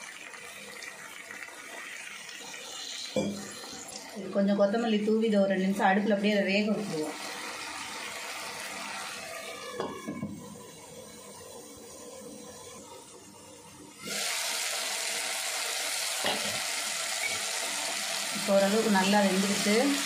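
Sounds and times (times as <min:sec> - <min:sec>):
gravy simmering in pan: 0:00.0 - 0:04.2
sizzling hiss of frying: 0:00.0 - 0:20.0.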